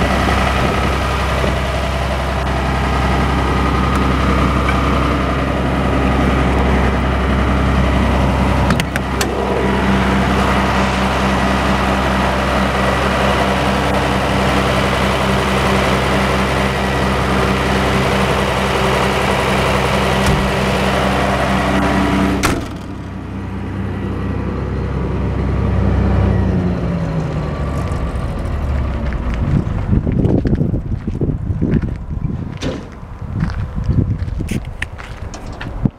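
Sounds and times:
diesel generator running: 0:00.0 - 0:35.9
knocks and rustling: 0:20.2 - 0:20.6
canopy door banging shut: 0:20.2 - 0:20.7, 0:22.4 - 0:23.2, 0:32.6 - 0:33.0.

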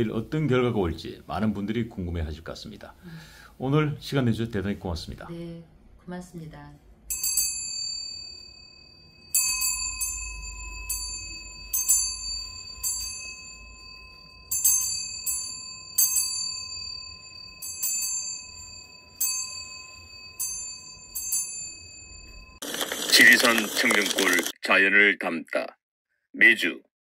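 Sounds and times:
small metal bell ringing: 0:07.1 - 0:22.6.

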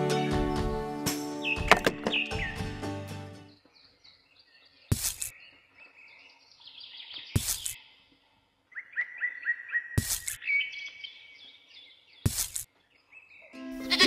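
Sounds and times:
small birds chirping: 0:01.4 - 0:02.7, 0:03.4 - 0:13.6
sharp plastic knocks: 0:01.7 - 0:02.3.

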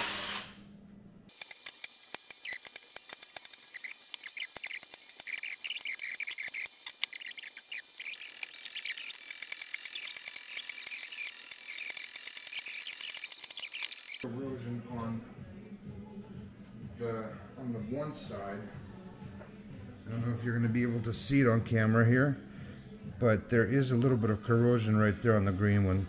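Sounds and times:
tools and nuts clicking: 0:01.3 - 0:14.2.

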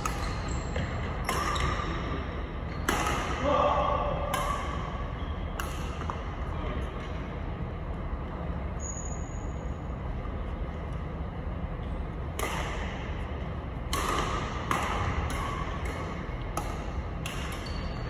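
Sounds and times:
rackets hitting shuttlecock: 0:00.0 - 0:06.4, 0:12.2 - 0:18.0
low hum of hall: 0:00.0 - 0:18.0.

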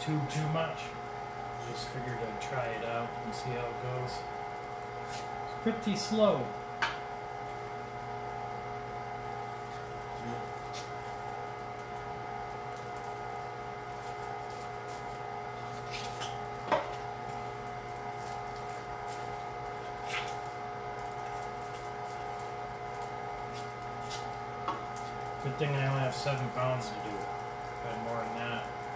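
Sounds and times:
electric meat grinder humming: 0:00.0 - 0:28.9.

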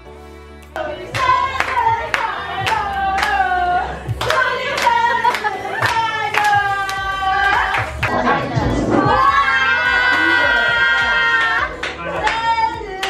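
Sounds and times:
people clapping on the beat: 0:00.8 - 0:08.2, 0:10.8 - 0:13.0
group of people singing: 0:00.8 - 0:13.0.

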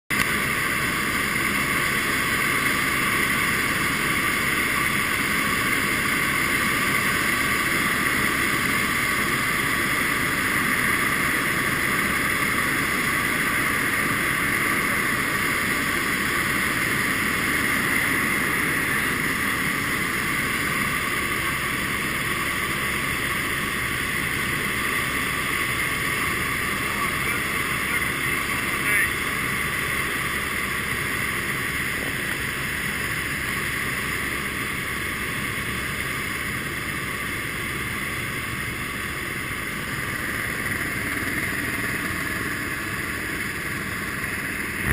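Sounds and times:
helicopter engine and rotor drone: 0:00.1 - 0:44.9.

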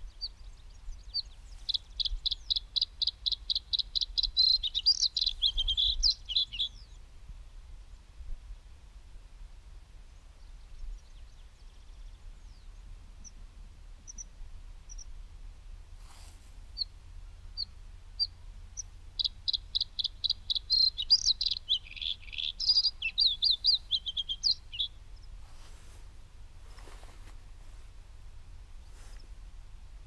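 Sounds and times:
songbird chirping: 0:00.0 - 0:08.2, 0:10.0 - 0:30.0
brief rustle: 0:25.4 - 0:27.9.

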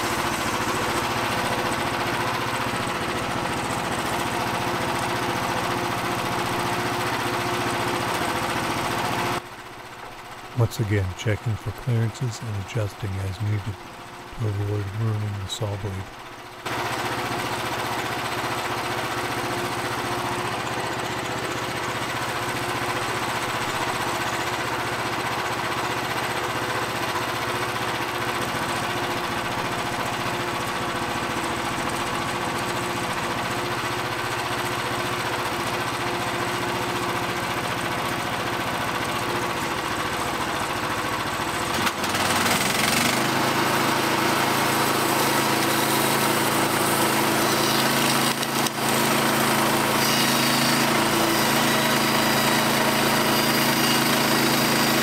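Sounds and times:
band saw cutting log: 0:00.0 - 0:09.4, 0:41.4 - 0:55.0
small gasoline engine running: 0:00.0 - 0:55.0.

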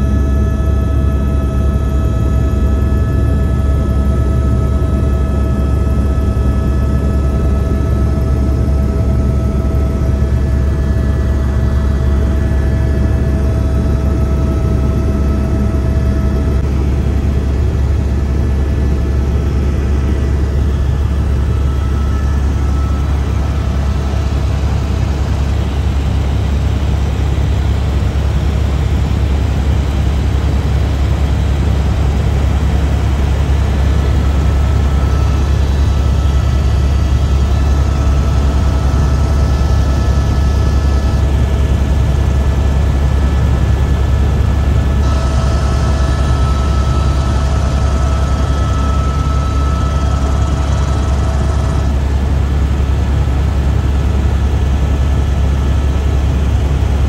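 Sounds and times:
helicopter rotor and engine drone: 0:00.0 - 0:57.0
faint whining tones: 0:45.0 - 0:52.0.

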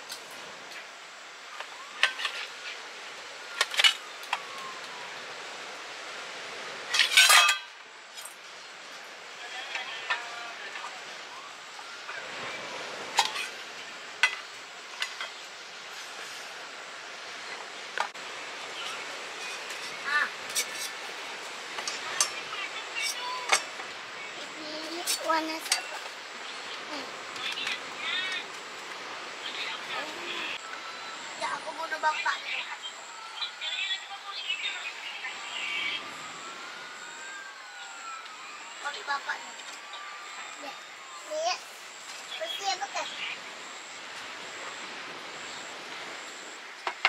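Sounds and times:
metal objects clinking: 0:07.0 - 0:07.7.

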